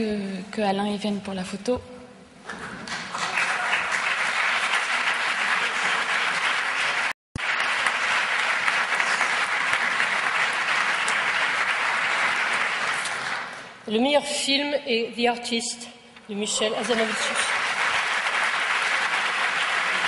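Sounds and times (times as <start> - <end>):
audience applauding: 2.9 - 13.7, 16.8 - 20.0.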